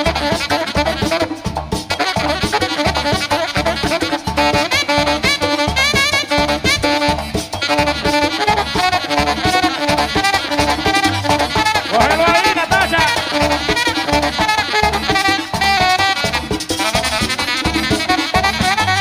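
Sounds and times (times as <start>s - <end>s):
drums and bass beat: 0.0s - 19.0s
saxophone melody: 0.0s - 19.0s.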